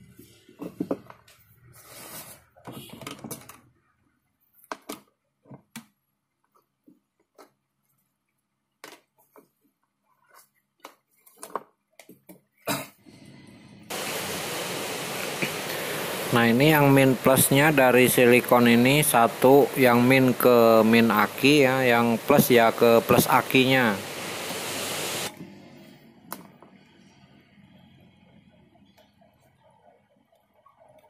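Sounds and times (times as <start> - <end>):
steady hiss: 13.9 - 25.3.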